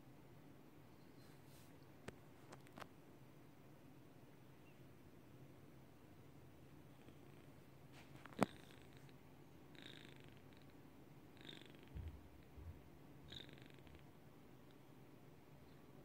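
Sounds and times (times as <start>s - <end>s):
kitten purring: 8.2s - 14.8s.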